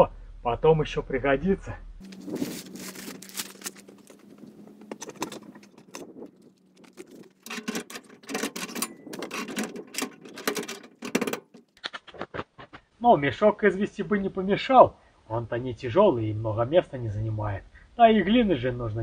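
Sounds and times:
rustling and clinks: 2.0 - 11.8
tailgate shutting: 2.1 - 11.7.

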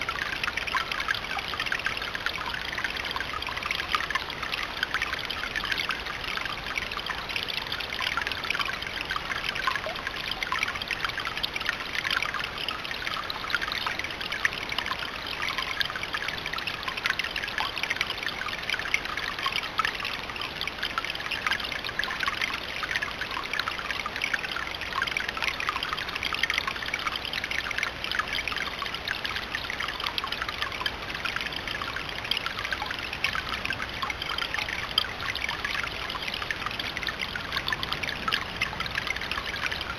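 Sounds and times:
fountain water trickling over stone: 0.0 - 39.9.

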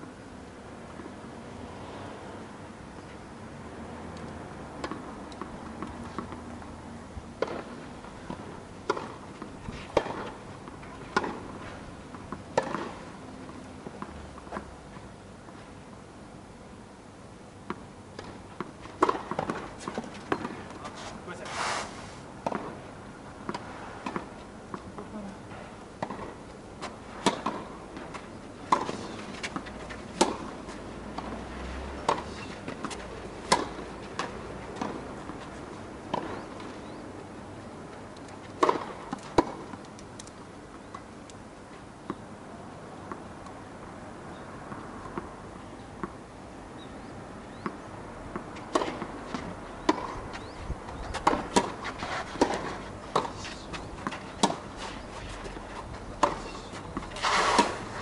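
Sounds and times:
tennis ball bouncing on court: 4.8 - 6.5, 7.4 - 7.7, 8.3 - 11.5, 12.2 - 14.7, 17.6 - 20.8, 22.4 - 22.8, 23.4 - 25.1, 26.0 - 26.4, 27.2 - 35.5, 36.1 - 36.8, 38.5 - 39.8, 46.0 - 46.2, 47.6 - 54.7, 56.2 - 57.8
racket hitting tennis ball: 8.3 - 10.4, 12.3 - 13.0, 19.0 - 21.0, 27.1 - 35.5, 38.6 - 39.8, 48.3 - 50.2, 51.1 - 58.0.

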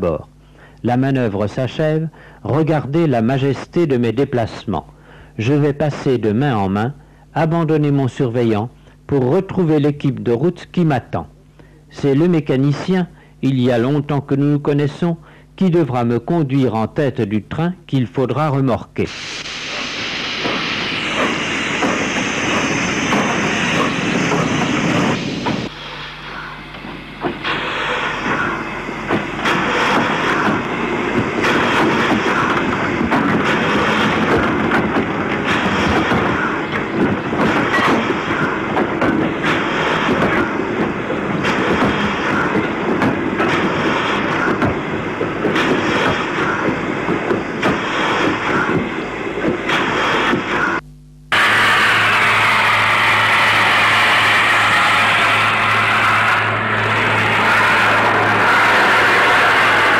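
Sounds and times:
steam locomotive chugging: 19.1 - 50.8, 51.4 - 59.9.

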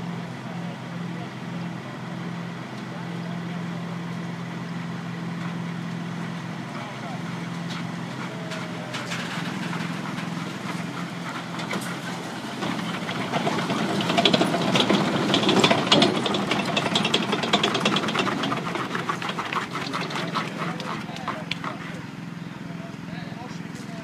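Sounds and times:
gas turbine whine: 0.0 - 24.0
tank tracks clanking: 7.6 - 22.1.

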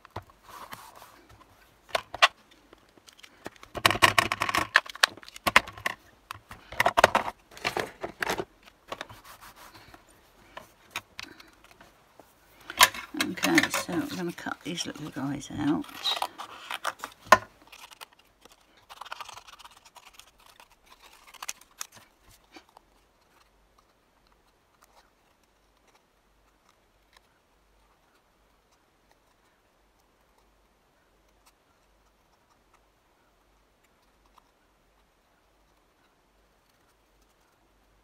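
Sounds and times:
paper rustling: 0.1 - 26.0.

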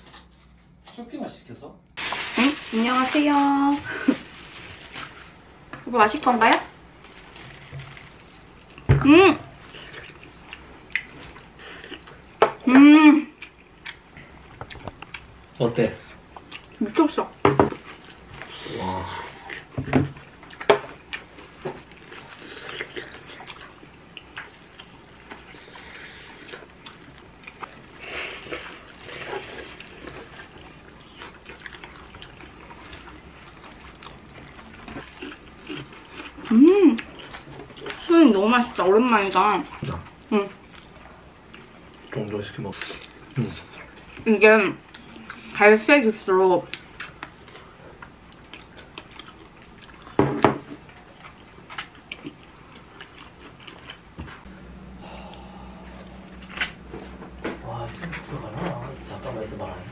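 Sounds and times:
person chewing close up: 9.5 - 12.4, 13.3 - 16.8, 17.8 - 38.1, 39.6 - 44.2, 44.8 - 45.6, 46.7 - 59.4
steady low hum: 50.7 - 59.9.

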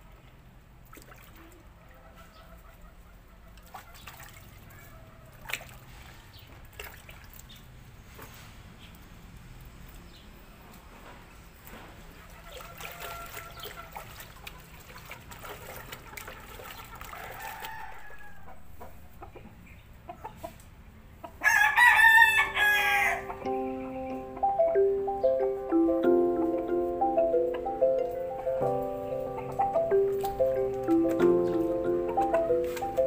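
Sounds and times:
hands splashing water in a basin: 0.3 - 1.7, 3.6 - 7.7, 12.3 - 18.0, 29.6 - 33.0
rooster crowing: 17.1 - 19.1, 21.4 - 23.5.

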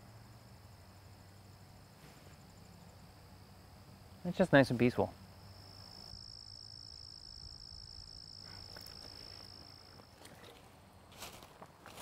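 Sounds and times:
cricket trill: 0.0 - 12.0
faint rustles: 1.9 - 2.5.

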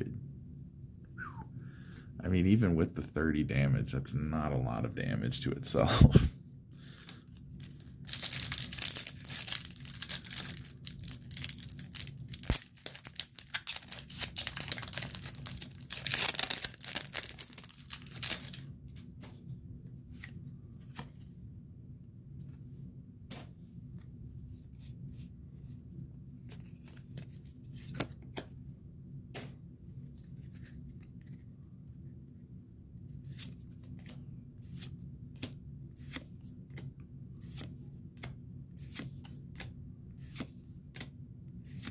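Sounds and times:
cards clicking and rustling: 7.0 - 19.4, 26.4 - 28.5
foil wrapper tearing and crinkling: 7.6 - 18.7.

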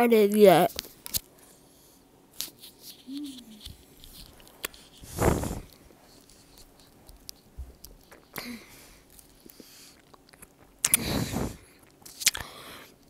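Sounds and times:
person sucking on candy: 2.9 - 3.9, 4.8 - 5.8, 9.4 - 12.5.

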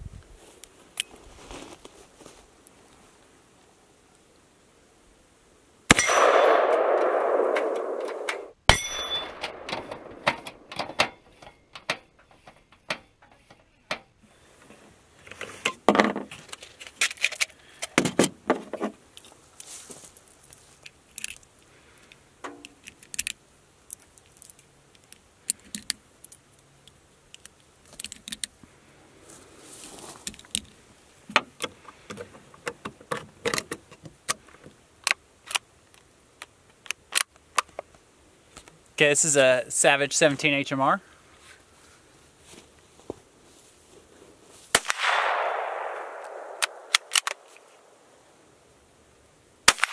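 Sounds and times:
sharp snap: 5.9 - 10.6, 44.8 - 47.7
cartridges clicking into rifle magazine: 46.1 - 47.7.

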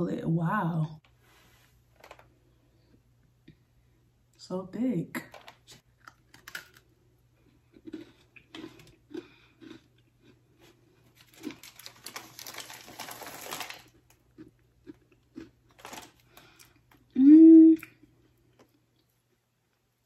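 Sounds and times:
cookie crunching: 5.3 - 17.2.

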